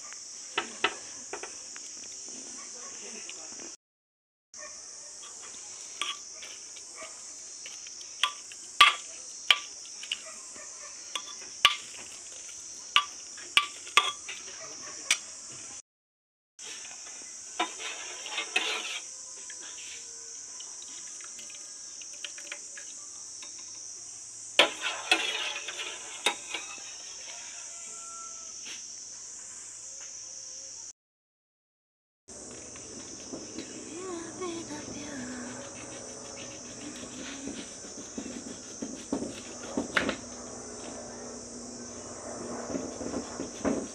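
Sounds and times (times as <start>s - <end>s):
ladle scraping through liquid: 17.6s - 19.1s, 24.6s - 27.0s.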